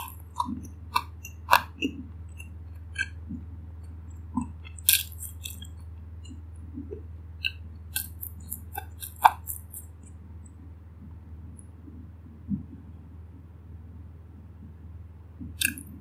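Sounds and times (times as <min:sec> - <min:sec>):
wet mouth clicks: 0:00.0 - 0:03.2, 0:04.3 - 0:10.2, 0:15.6 - 0:15.9
chewing with mouth closed: 0:00.0 - 0:03.4, 0:04.1 - 0:10.2, 0:15.6 - 0:15.9
low steady hum: 0:00.0 - 0:16.0.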